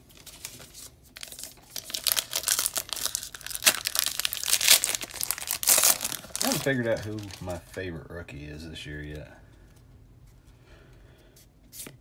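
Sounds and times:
plastic wrapper crinkling and tearing: 0:00.0 - 0:07.6.

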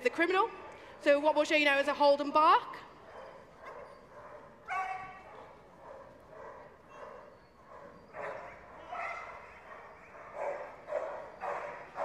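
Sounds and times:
dog barking: 0:03.0 - 0:12.0.

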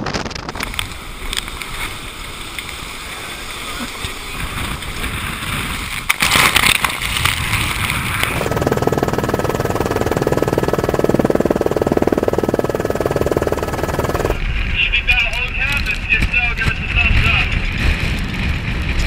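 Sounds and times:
rushing water and spray: 0:00.5 - 0:08.6
helicopter turbine and rotor: 0:08.1 - 0:14.5.

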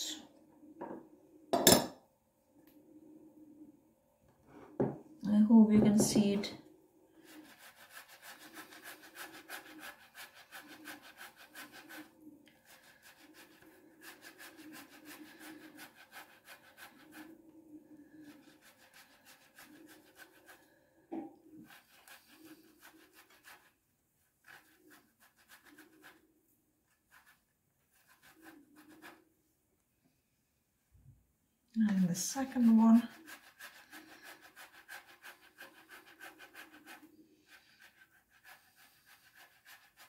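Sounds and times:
potato scraping on grater: 0:07.2 - 0:17.4, 0:18.0 - 0:20.7, 0:21.5 - 0:23.8, 0:24.4 - 0:26.3, 0:27.0 - 0:29.2, 0:31.9 - 0:40.0.

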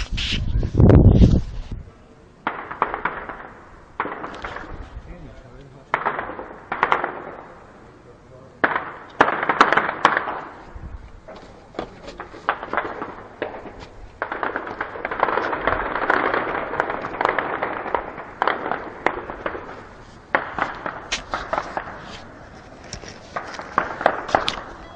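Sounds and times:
heavy gunfire: 0:02.4 - 0:04.8, 0:05.9 - 0:07.5, 0:08.6 - 0:10.6, 0:12.5 - 0:22.0, 0:23.4 - 0:24.9.

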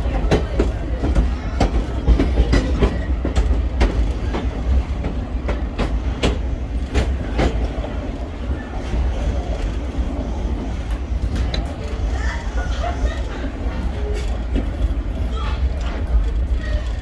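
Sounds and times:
railroad car rumbling: 0:00.0 - 0:17.0
wheels clicking over rail joints: 0:00.0 - 0:17.0.

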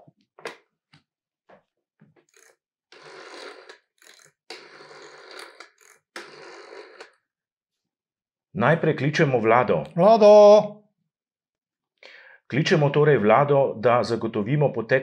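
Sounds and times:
rotary dial whirring and clicking: 0:02.2 - 0:07.1.

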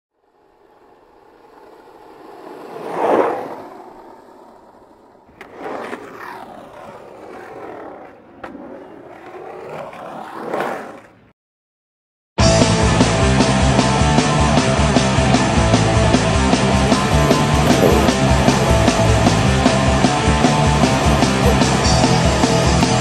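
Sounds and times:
skateboard wheels rolling on pavement: 0:00.1 - 0:11.3, 0:12.4 - 0:23.0
skateboard clicks: 0:00.3 - 0:11.3, 0:16.6 - 0:23.0
loud rock music: 0:12.4 - 0:23.0.

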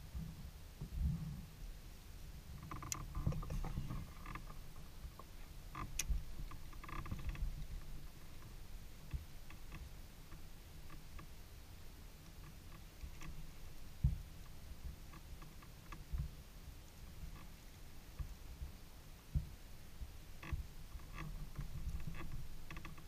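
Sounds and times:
kayak creaking: 0:02.6 - 0:11.4, 0:12.2 - 0:16.4, 0:20.3 - 0:23.0.

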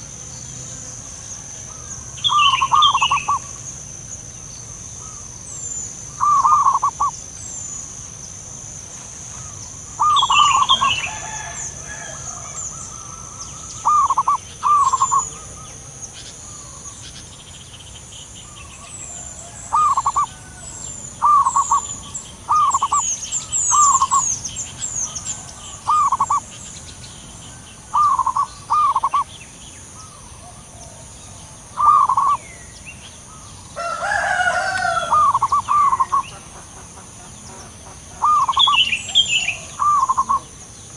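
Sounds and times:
doves trilled cooing: 0:00.0 - 0:40.9
loud full bird call: 0:00.0 - 0:40.9
small birds chirping: 0:00.0 - 0:40.9.

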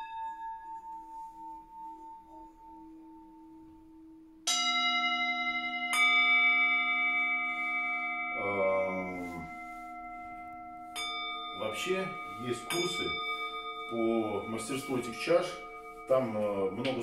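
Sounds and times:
wavering buzz: 0:00.0 - 0:17.0
singing bowl struck with mallet: 0:04.4 - 0:17.0.

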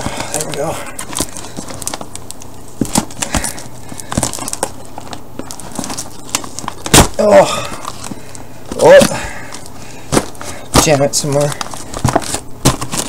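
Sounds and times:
cardboard box ripped open: 0:10.2 - 0:13.0.

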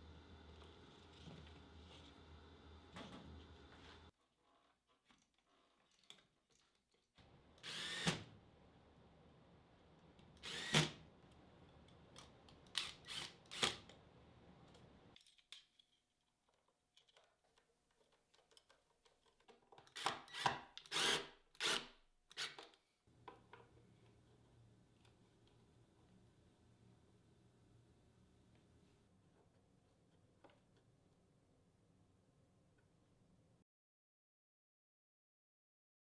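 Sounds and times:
power drill bursts: 0:07.6 - 0:08.2, 0:10.4 - 0:11.0, 0:12.8 - 0:13.8, 0:20.0 - 0:22.6.

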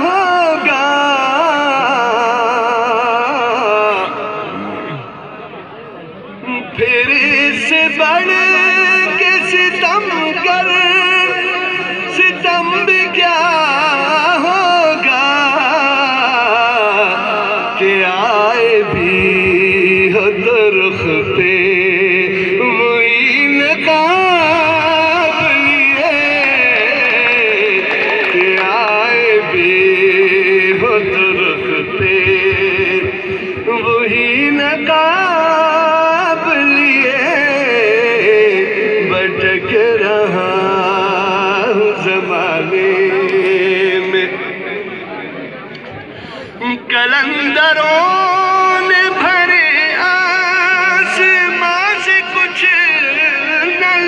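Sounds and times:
man singing slow melody: 0:00.0 - 0:05.5, 0:06.3 - 0:45.2, 0:46.2 - 0:54.0
person singing slowly: 0:03.6 - 0:05.1.

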